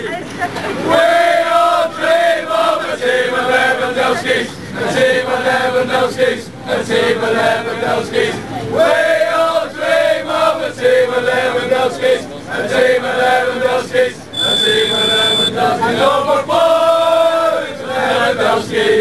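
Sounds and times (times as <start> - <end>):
crowd chanting a song: 0.9 - 19.0
high steady beep: 14.3 - 15.6.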